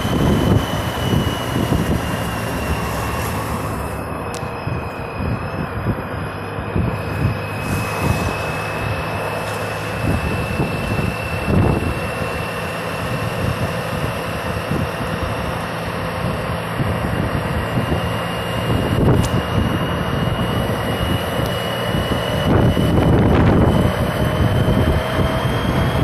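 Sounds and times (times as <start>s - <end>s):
wind rushing: 0.0s - 12.3s
motorcycle engine running: 0.0s - 26.0s.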